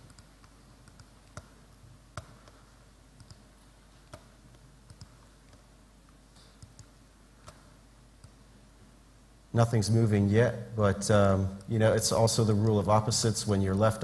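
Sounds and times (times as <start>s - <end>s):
faint computer mouse clicks: 4.9s - 8.4s.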